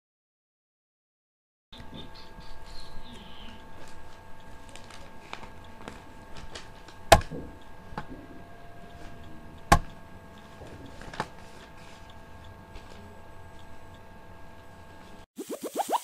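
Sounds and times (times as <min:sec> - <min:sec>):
faint steady hum: 0:01.8 - 0:15.3
sharp knocks: 0:09.7 - 0:09.9.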